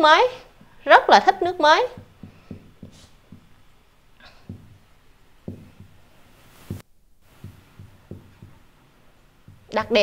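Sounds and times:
marker pen writing on whiteboard: 0:01.5 - 0:03.8, 0:04.5 - 0:10.0.

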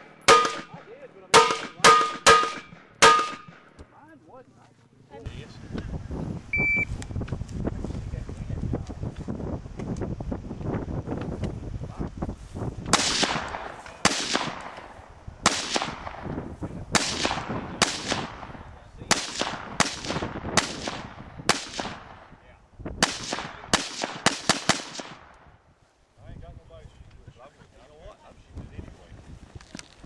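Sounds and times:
rifle shots echoing: 0:00.0 - 0:03.8, 0:12.9 - 0:16.3, 0:16.9 - 0:22.3, 0:23.0 - 0:25.5.

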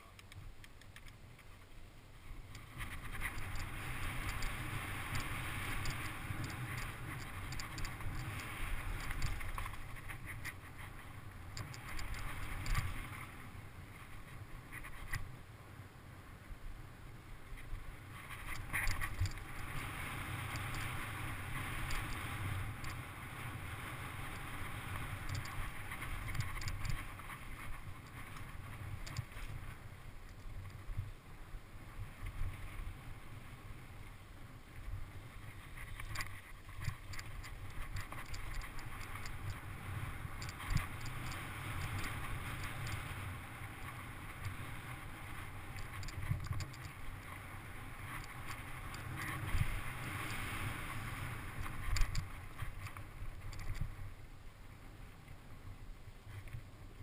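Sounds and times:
wind rushing over microphone: 0:01.3 - 0:15.3, 0:16.4 - 0:54.3
bike rattling over bumps: 0:02.6 - 0:15.2, 0:18.0 - 0:31.0, 0:35.3 - 0:54.2.

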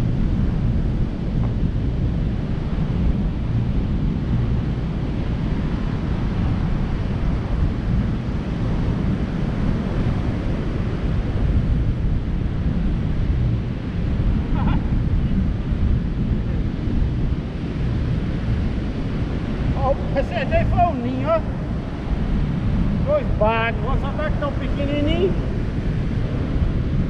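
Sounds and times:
wind buffeting microphone: 0:00.0 - 0:27.0
breaking surf: 0:13.0 - 0:27.0.

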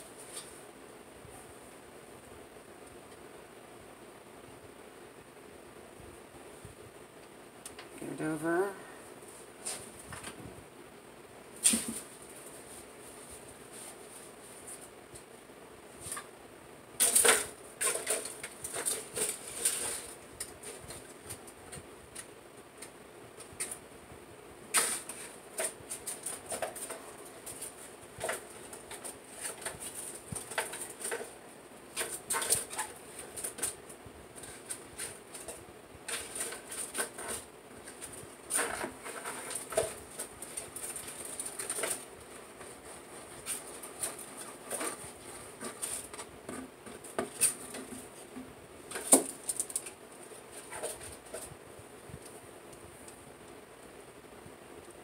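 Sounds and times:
aluminium foil crinkling: 0:17.0 - 0:23.8, 0:24.7 - 0:48.3, 0:48.9 - 0:51.6.

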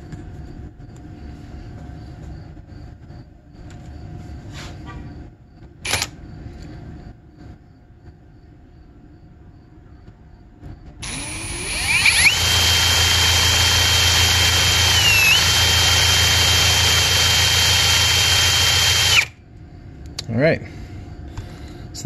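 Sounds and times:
cordless drill whining: 0:11.0 - 0:19.4.

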